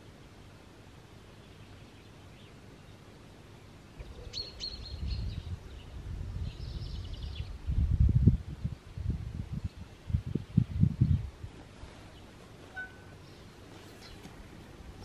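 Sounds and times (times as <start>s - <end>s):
songbirds chirping: 0.0s - 15.0s
wind rumble on microphone: 4.0s - 13.0s.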